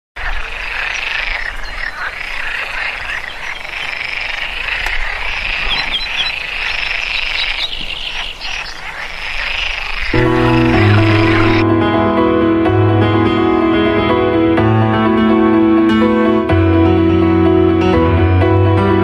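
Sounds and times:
frogs calling: 0.2s - 11.6s.

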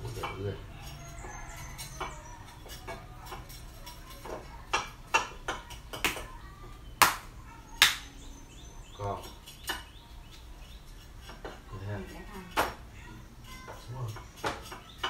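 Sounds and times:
sharp slaps and taps: 5.1s - 6.3s, 7.0s - 8.2s.

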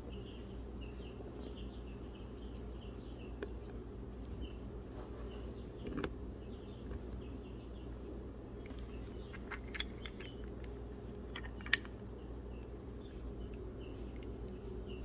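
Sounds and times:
steady low hum: 0.0s - 15.0s
metallic clicks of engine parts: 8.6s - 12.0s.

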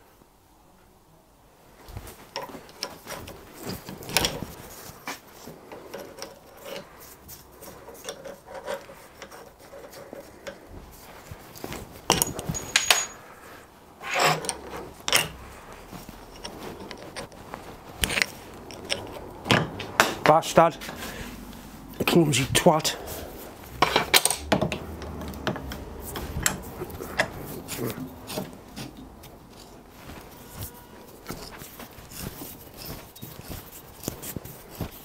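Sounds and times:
metal clinks: 12.1s - 13.4s
spanner scraping metal: 14.0s - 15.4s.

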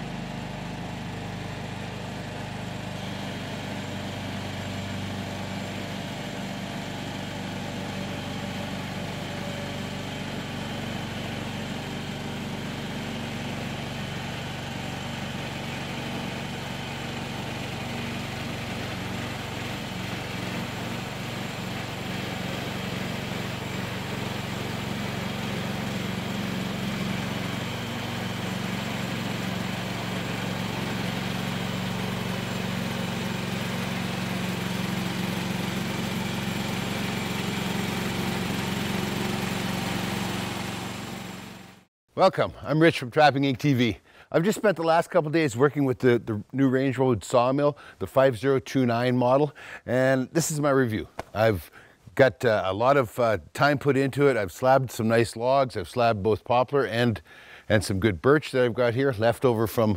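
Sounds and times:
band sawmill cutting log: 0.0s - 41.9s.

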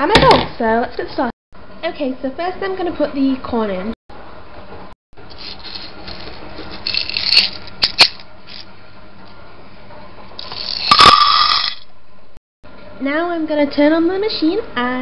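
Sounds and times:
popcorn kernels rattling: 5.3s - 8.6s, 10.4s - 11.8s.

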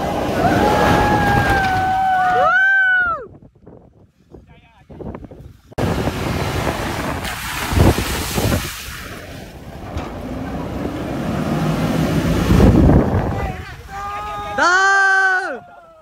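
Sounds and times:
tyres churning through mud: 0.0s - 2.4s, 5.7s - 14.8s
wind buffeting microphone: 0.0s - 14.6s
off-road vehicle engine running hard: 9.5s - 13.8s.

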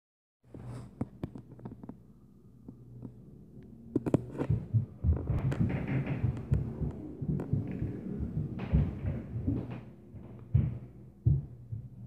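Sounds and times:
low hum: 1.4s - 12.0s
footsteps stomping upstairs: 4.4s - 12.0s.

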